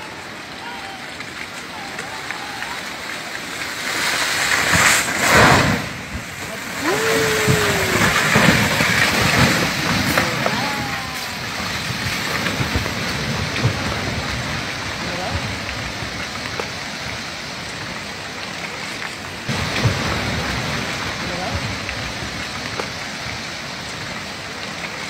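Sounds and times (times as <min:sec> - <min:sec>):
landslide rushing: 0:00.0 - 0:25.0
person shouting: 0:06.7 - 0:08.9, 0:10.1 - 0:11.6.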